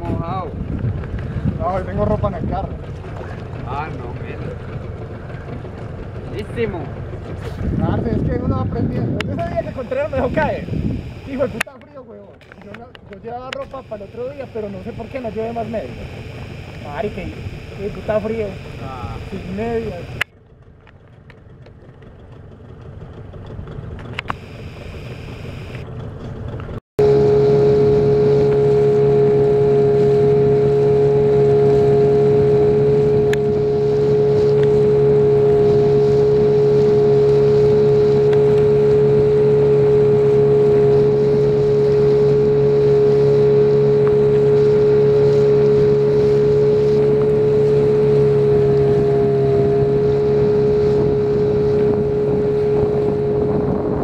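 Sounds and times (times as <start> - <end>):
wind and water rush: 0.0 - 11.6, 27.0 - 54.0
boat motor whining: 0.0 - 54.0.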